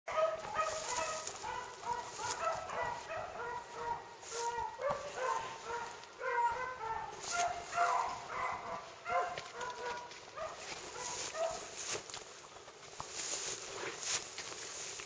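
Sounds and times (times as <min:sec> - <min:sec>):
beagles baying: 0:00.1 - 0:11.8.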